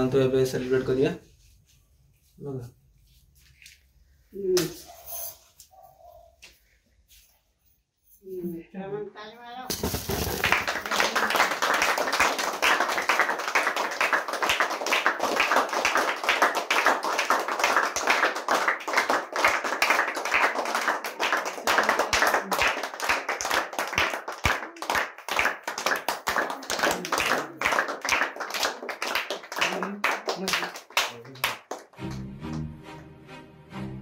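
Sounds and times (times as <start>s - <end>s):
group clapping: 9.7s - 33.1s.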